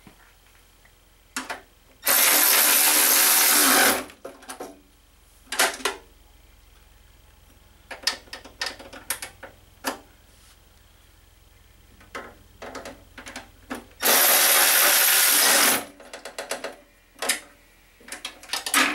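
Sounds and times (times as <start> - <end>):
power ratchet motor running: 2.0 - 4.1, 14.0 - 15.9.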